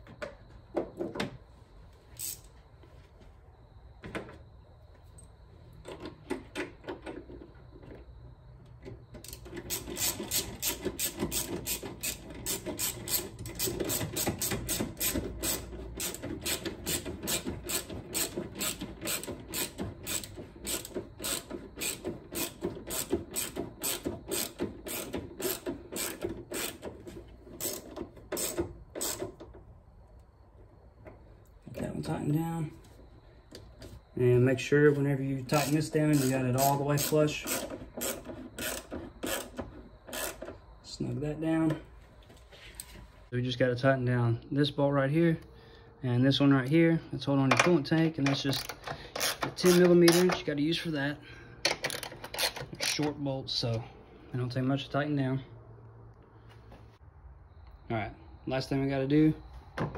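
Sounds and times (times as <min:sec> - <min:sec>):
hand ratchet clicking: 0:02.2 - 0:02.4, 0:09.2 - 0:29.4, 0:35.5 - 0:40.5, 0:48.2 - 0:50.4, 0:51.7 - 0:53.1.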